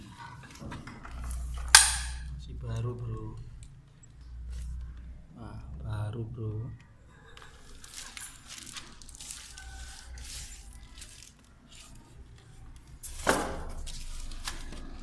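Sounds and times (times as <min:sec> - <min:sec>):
packaging rustling and crinkling: 0:07.4 - 0:15.0.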